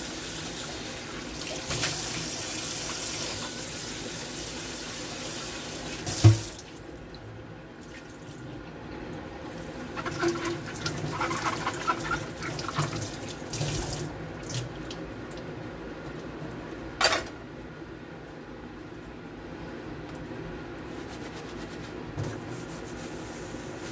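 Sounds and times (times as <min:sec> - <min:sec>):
tap running into a steel sink: 0:06.0 - 0:06.5.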